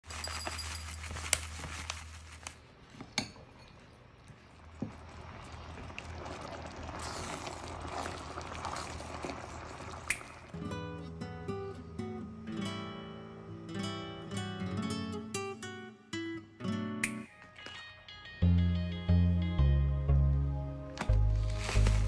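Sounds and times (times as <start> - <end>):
ladle stirring thick sauce: 2.9 - 10.5.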